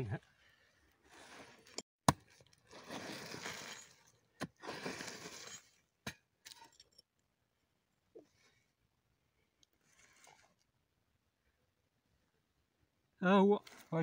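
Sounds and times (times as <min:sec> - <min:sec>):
soil scraping and crumbling: 0:00.9 - 0:07.0, 0:09.7 - 0:10.7, 0:13.6 - 0:14.0
hoe striking hard earth: 0:02.0 - 0:06.6.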